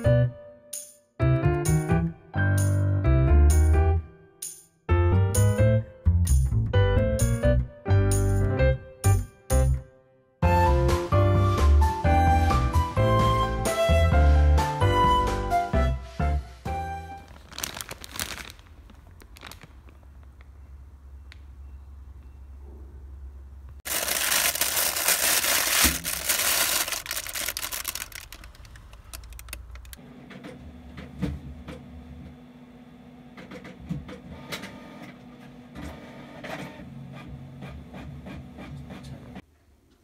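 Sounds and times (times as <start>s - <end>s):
printer mechanical noise: 33.3s - 39.4s.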